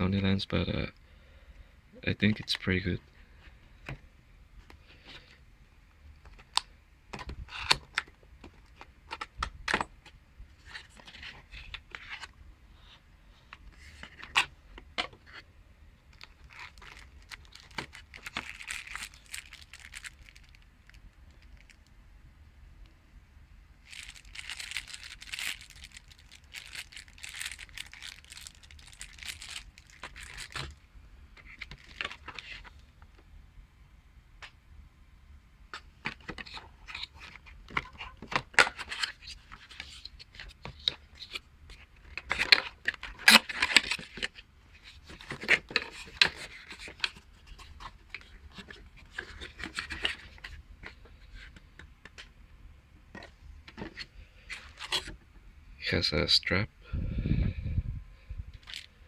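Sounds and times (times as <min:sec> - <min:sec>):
plastic packaging crinkling: 0:16.1 - 0:21.9, 0:23.8 - 0:30.8, 0:31.4 - 0:32.8, 0:58.6 - 0:58.9
clicks crackles and scrapes: 0:35.7 - 0:52.3, 0:53.1 - 0:55.2.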